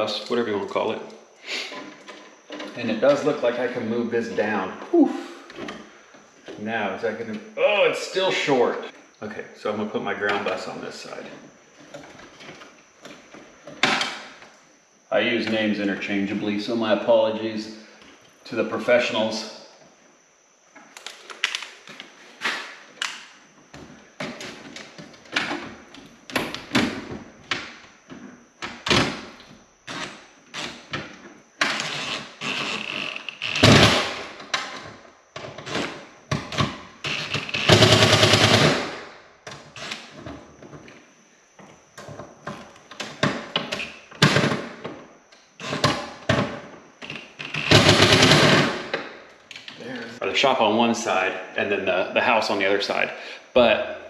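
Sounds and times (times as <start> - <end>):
cordless drill driving screws: 31.6 - 34.2
cordless drill running: 31.6 - 34.3, 37.0 - 39.0, 47.4 - 48.9.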